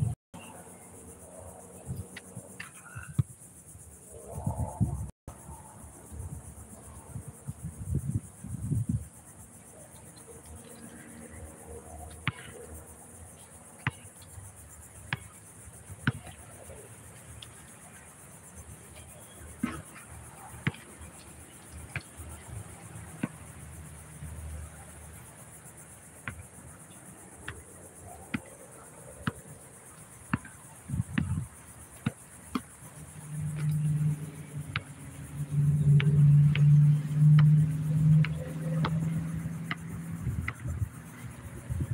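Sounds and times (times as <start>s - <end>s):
high insect buzz: 0.0s - 41.9s
basketball bouncing on concrete: 12.2s - 12.6s, 13.8s - 14.1s, 15.1s - 15.4s, 16.0s - 16.4s, 20.6s - 20.9s, 30.3s - 31.4s, 36.0s - 37.6s.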